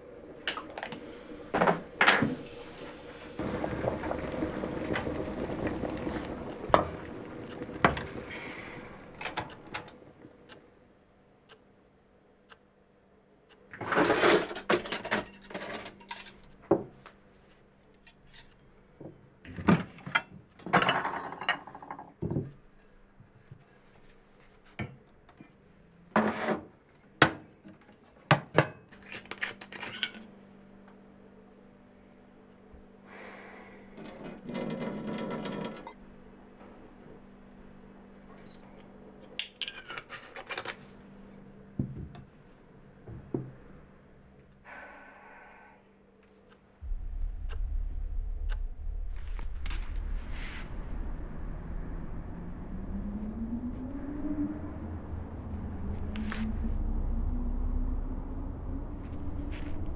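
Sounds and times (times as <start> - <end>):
faint steady hum: 0.0 - 19.5, 30.1 - 59.9
cutlery and dishes clinking: 13.9 - 16.5.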